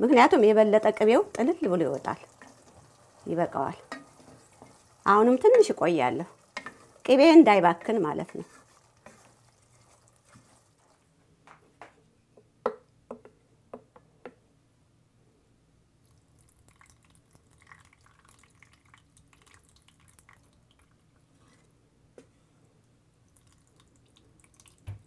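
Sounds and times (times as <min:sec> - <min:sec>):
butter dripping into plastic pitcher: 0:23.3 - 0:25.0.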